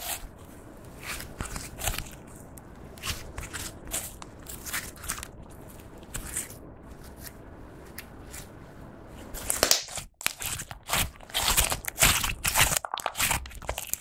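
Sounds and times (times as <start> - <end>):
slime crackling pops: 9.4 - 14.0.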